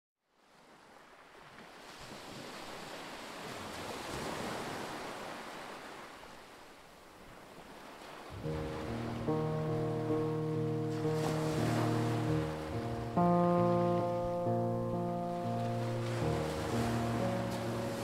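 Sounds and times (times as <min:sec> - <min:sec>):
sea waves washing onto shore: 0:00.7 - 0:18.0
music: 0:08.4 - 0:18.0.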